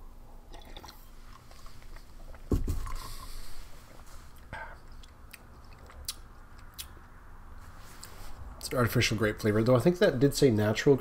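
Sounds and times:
sipping and swallowing: 0.4s - 7.0s.

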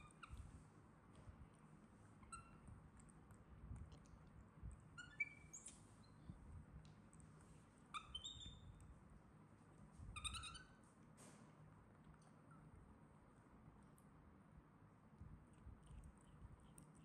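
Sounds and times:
baby monkey squeaking: 0.0s - 0.4s, 2.3s - 2.6s, 5.0s - 6.2s, 7.9s - 8.8s, 10.1s - 10.8s.

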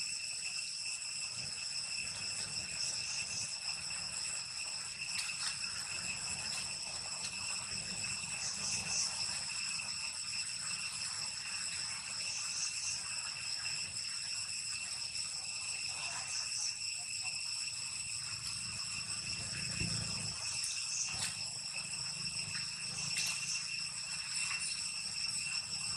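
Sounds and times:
shrill insect chorus: 0.0s - 25.9s.

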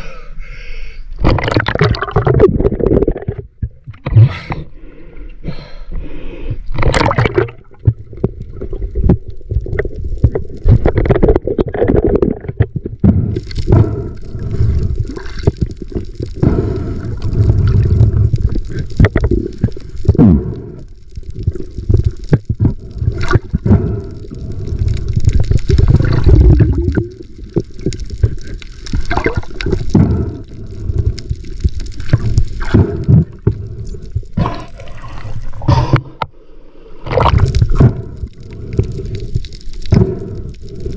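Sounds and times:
sea water sloshing: 6.8s - 12.8s, 24.9s - 29.9s.

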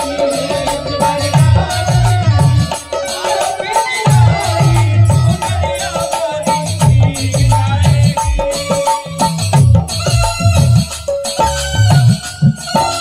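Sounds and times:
woman singing into microphone: 0.0s - 9.2s
harmonium tones: 0.0s - 13.0s
repeating drum beat: 0.0s - 13.0s.

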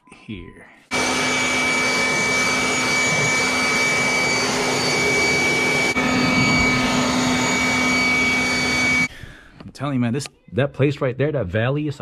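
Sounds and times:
air blower whining: 0.9s - 9.4s.

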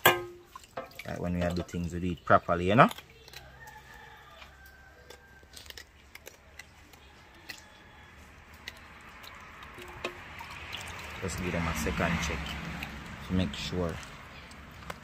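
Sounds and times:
water swishing in tray: 0.0s - 3.9s, 8.2s - 15.0s
small wet clicks and squishes: 0.0s - 15.0s.

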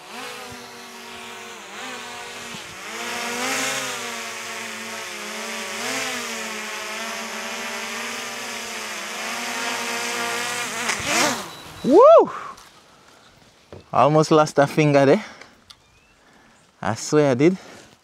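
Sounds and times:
drone propellers buzzing: 0.0s - 12.0s.

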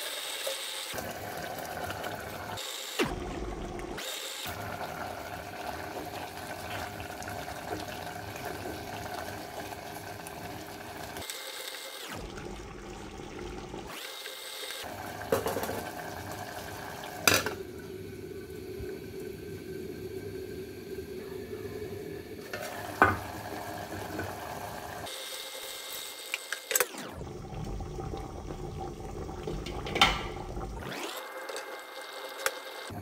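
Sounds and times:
curry bubbling in a pot: 1.0s - 11.2s, 27.2s - 30.9s.

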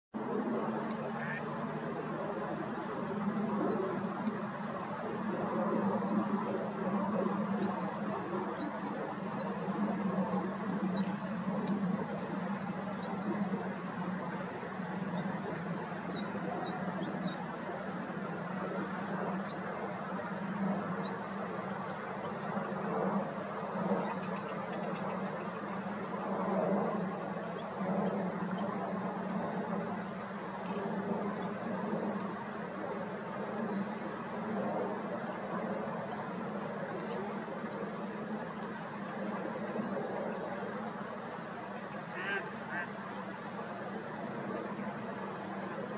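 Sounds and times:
faint chirps: 41.5s - 44.6s.

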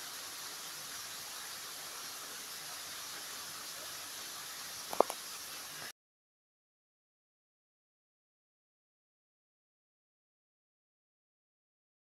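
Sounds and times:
breezy lakeshore hiss: 0.0s - 5.9s.

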